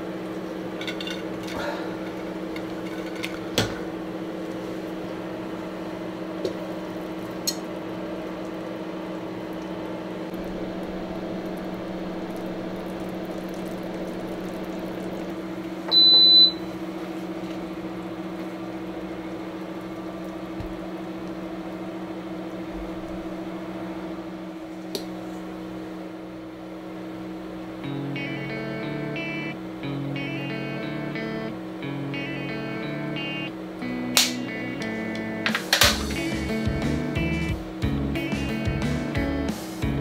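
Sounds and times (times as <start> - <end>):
induction cooktop humming: 0.0 - 40.0.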